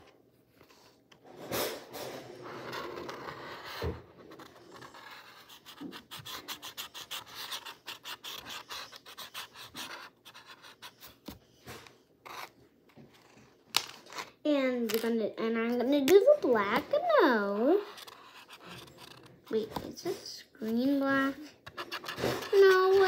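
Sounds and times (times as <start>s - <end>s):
scratching on canvas board: 2.3s - 13.5s, 17.4s - 19.8s, 21.1s - 23.0s.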